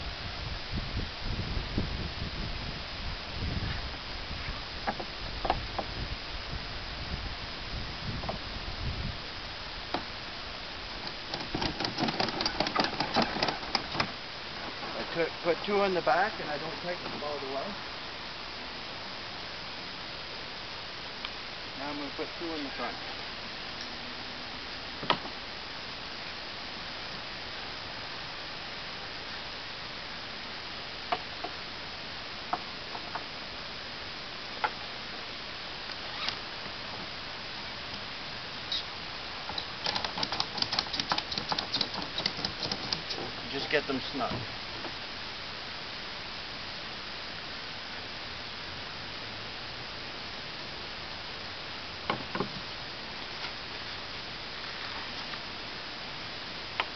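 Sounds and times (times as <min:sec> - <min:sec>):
steady hiss: 0:00.0 - 0:56.9
ratchet strap clicking: 0:11.0 - 0:14.1, 0:39.5 - 0:43.2.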